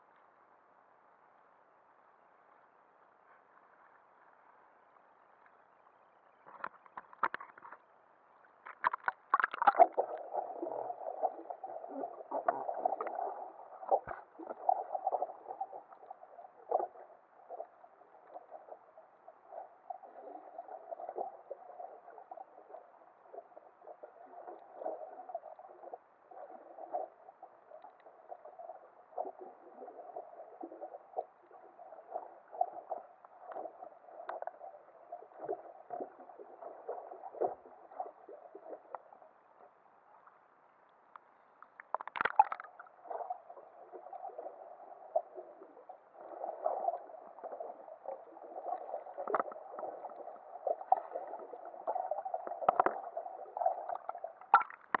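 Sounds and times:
water splashing: 0:08.7 - 0:17.7, 0:41.8 - 0:55.0
muffled water gurgling underwater: 0:08.8 - 0:39.8, 0:42.0 - 0:55.0.

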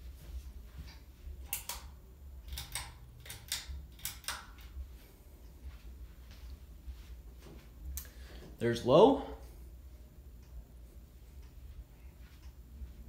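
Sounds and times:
low steady hum: 0:00.0 - 0:13.0
pull-chain switch double clicks: 0:02.5 - 0:04.6.

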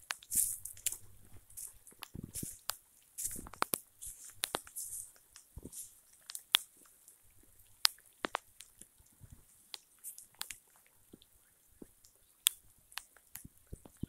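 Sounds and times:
stones clicking: 0:00.0 - 0:06.9, 0:07.6 - 0:08.9, 0:09.7 - 0:14.0
bare footsteps on wet gravel: 0:00.0 - 0:08.8.

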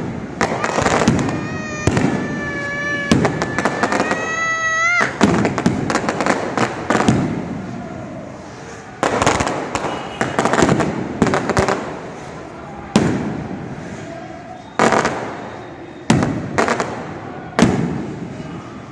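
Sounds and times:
rolling echo: 0:00.0 - 0:08.3
firecrackers bursting overhead: 0:00.0 - 0:18.9.

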